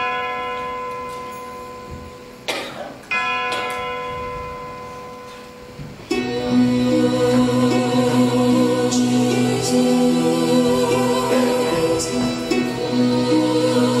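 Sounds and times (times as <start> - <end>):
bell-like chime ringing: 0.0 - 2.5, 3.1 - 7.1
sustained music with low drone: 6.1 - 14.0.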